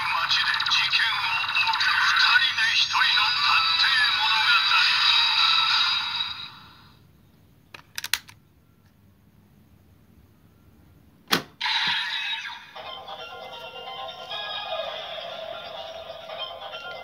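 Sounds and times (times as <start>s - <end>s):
toy electronic sound and narration: 0.0s - 6.6s
sharp plastic click: 7.7s - 8.4s
plastic clicks: 7.7s - 9.0s.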